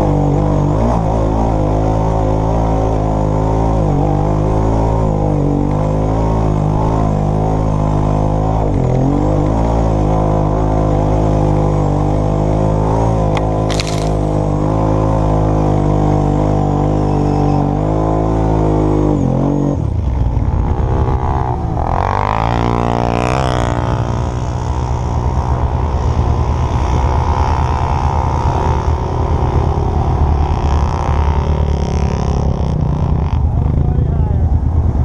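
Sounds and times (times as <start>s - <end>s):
atv engine running hard: 0.0s - 35.0s
second atv passing: 21.0s - 34.9s.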